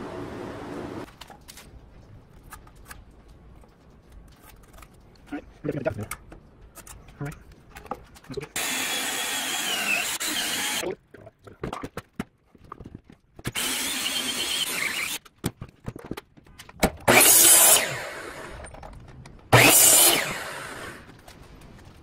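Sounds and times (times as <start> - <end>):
cordless drill with hole saw: 8.6 - 10.8, 13.5 - 15.2, 17.1 - 18.6, 19.5 - 21.1
miter saw cutting: 8.6 - 10.8, 13.5 - 15.2, 17.1 - 18.6, 19.5 - 21.1.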